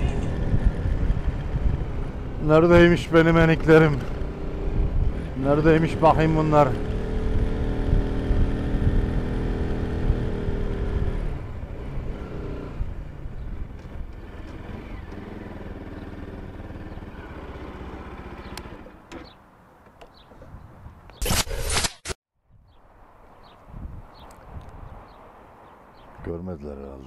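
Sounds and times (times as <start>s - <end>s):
motorcycle engine running: 0.0s - 19.4s.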